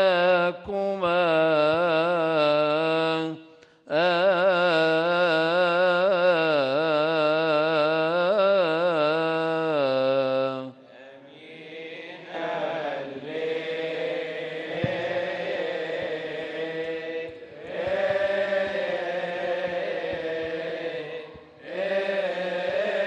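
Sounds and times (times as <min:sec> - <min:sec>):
male choir chanting a hymn: 0:00.0 - 0:23.0.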